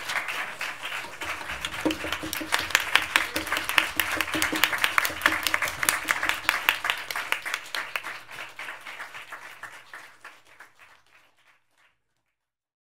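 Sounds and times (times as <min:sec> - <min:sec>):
applause: 0:00.0 - 0:12.5.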